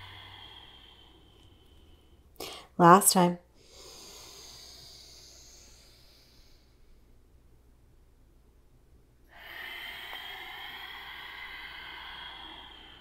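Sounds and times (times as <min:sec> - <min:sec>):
woman breathing in: 0:00.0 - 0:02.8, 0:03.5 - 0:07.2, 0:09.3 - 0:13.0
woman exhaling: 0:00.0 - 0:02.8, 0:09.3 - 0:13.0.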